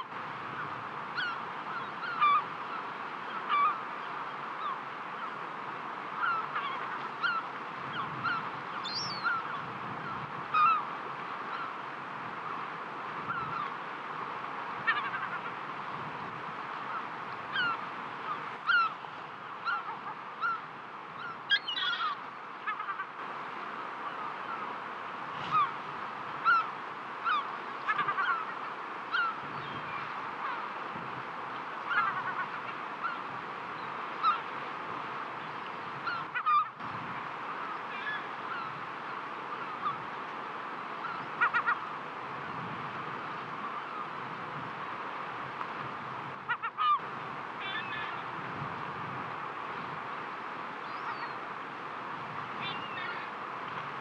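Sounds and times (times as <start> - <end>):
birds calling: 0.0 - 5.4, 6.1 - 11.8, 13.2 - 13.8, 16.8 - 23.2, 25.4 - 30.8, 31.5 - 34.6, 35.4 - 36.8, 37.5 - 40.3, 40.9 - 42.0, 47.6 - 48.3, 50.8 - 51.4, 52.5 - 53.3
sea surf on rocky shore: 0.0 - 54.0.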